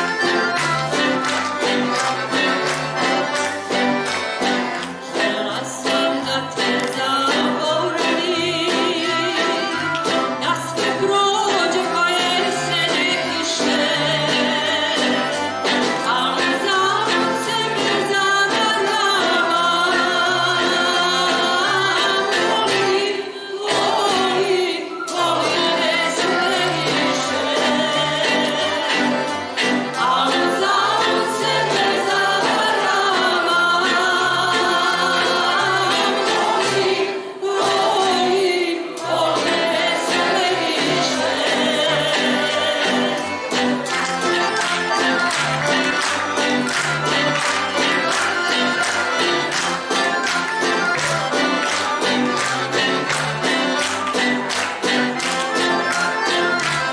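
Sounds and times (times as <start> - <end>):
mixed choir singing: 0.0 - 9.8, 16.0 - 44.0, 44.6 - 50.2
acoustic guitars and plucked strings: 0.0 - 56.9
woman singing with vibrato: 5.0 - 43.5.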